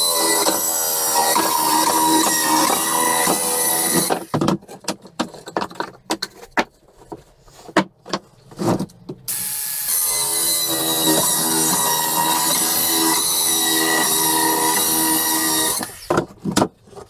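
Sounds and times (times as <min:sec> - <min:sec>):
circular saw cutting wood: 0:00.0 - 0:04.3, 0:09.3 - 0:16.1
wood pieces knocking and clattering: 0:01.8 - 0:09.3, 0:16.0 - 0:17.0.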